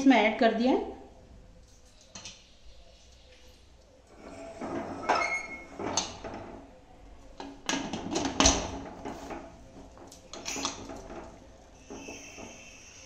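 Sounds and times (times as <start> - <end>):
metal lid clanking and scraping: 4.2 - 6.5.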